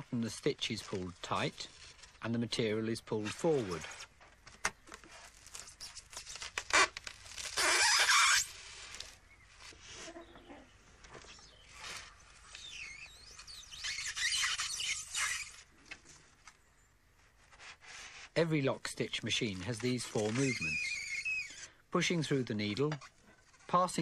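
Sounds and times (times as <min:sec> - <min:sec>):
polystyrene squeaking and creaking: 0:00.0 - 0:16.4, 0:17.2 - 0:24.0
thread pulled through polystyrene: 0:00.0 - 0:24.0
loud rasp: 0:19.5 - 0:21.8.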